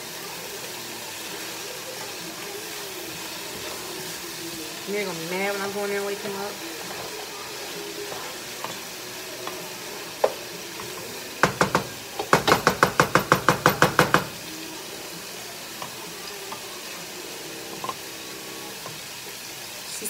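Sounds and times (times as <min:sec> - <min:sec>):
vegetables sizzling in pan: 0:00.0 - 0:20.0
wooden spoons stirring: 0:01.8 - 0:14.4.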